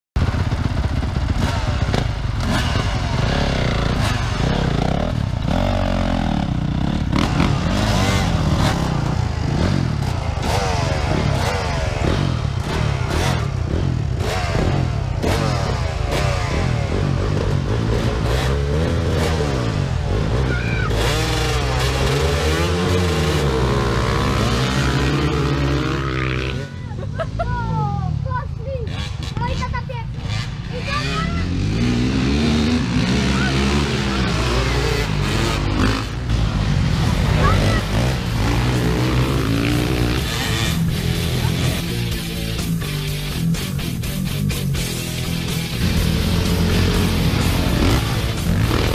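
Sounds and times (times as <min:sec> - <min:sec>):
dirt bike engines revving: 0:00.2 - 0:48.9.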